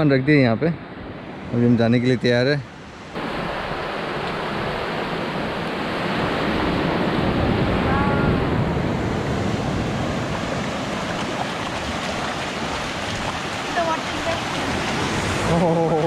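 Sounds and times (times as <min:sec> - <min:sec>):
wind buffeting microphone: 0:02.9 - 0:16.0
surf breaking on beach: 0:03.2 - 0:16.0.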